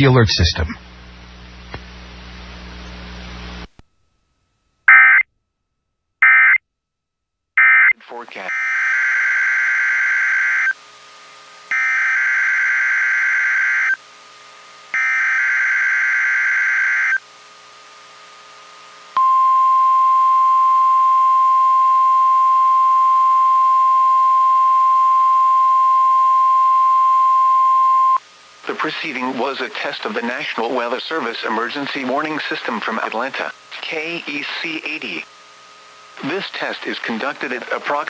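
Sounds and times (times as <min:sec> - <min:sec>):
steady warning alarm tone: 0:07.6 - 0:10.8, 0:11.7 - 0:14.0, 0:15.0 - 0:17.2.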